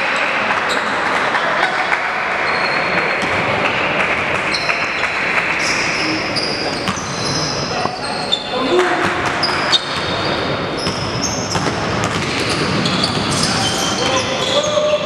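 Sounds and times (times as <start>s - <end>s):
noisy din of hall: 0.0s - 15.0s
sneakers squeaking on court: 2.5s - 15.0s
basketball bouncing: 3.2s - 5.1s, 8.7s - 14.2s.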